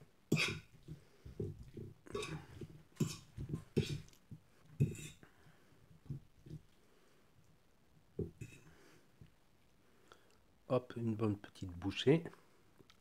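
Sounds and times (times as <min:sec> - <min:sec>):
pasta squelching: 0:00.3 - 0:07.6.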